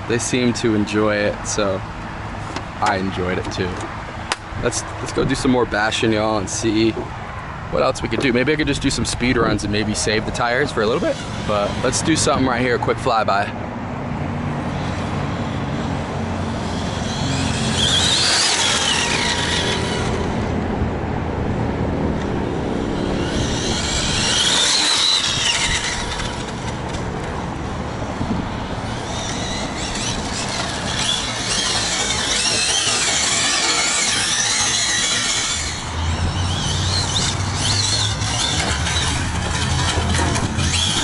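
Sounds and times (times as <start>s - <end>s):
tyre squeal on asphalt: 9.6s - 12.8s, 16.5s - 20.5s, 22.7s - 27.4s, 28.6s - 41.0s
electric motor whining: 16.4s - 20.6s, 22.2s - 27.7s, 28.6s - 41.0s.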